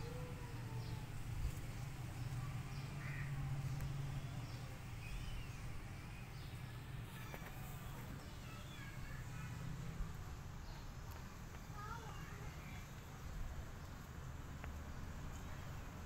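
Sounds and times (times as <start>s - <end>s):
birds chirping: 2.1s - 9.5s.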